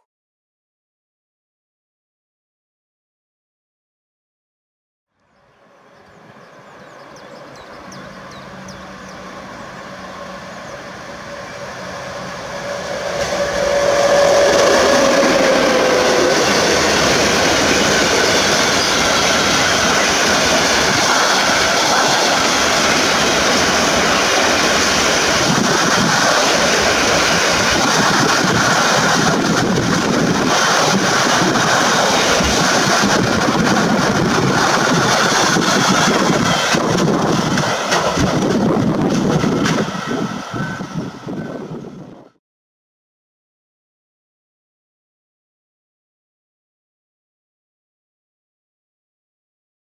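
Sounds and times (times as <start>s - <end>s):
electric locomotive whine: 5.2s - 42.4s.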